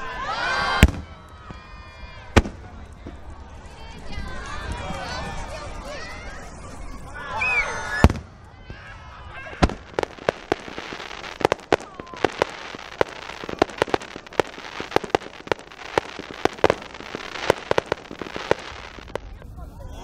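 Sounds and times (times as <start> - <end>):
crackling firework bursts: 0.2 - 6.4, 7.5 - 20.0
fireworks bangs and pops: 0.7 - 1.6, 2.3 - 3.3, 8.0 - 19.8
continuous hiss: 8.1 - 19.6.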